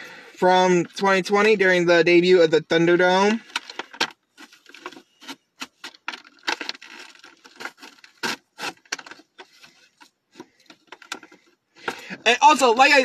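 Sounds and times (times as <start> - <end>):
cardboard and plastic rubbing and clicking: 3.4 - 13.0.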